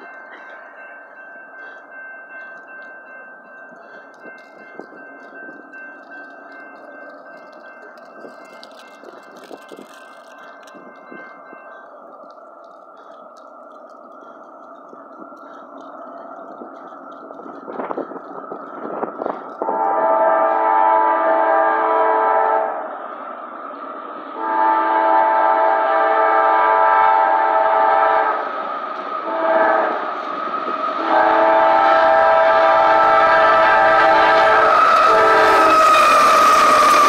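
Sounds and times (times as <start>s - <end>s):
train rumbling: 0.0s - 37.0s
locomotive air horn: 19.6s - 22.8s, 24.4s - 28.4s, 29.2s - 30.0s, 31.0s - 37.0s.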